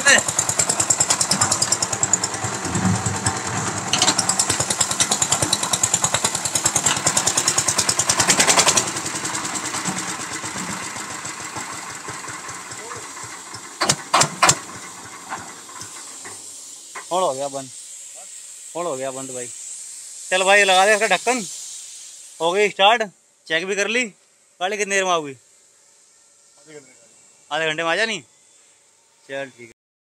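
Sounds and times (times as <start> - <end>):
concrete mixer diesel engine running: 0.0 - 17.6
sharp knocks: 2.6 - 6.2.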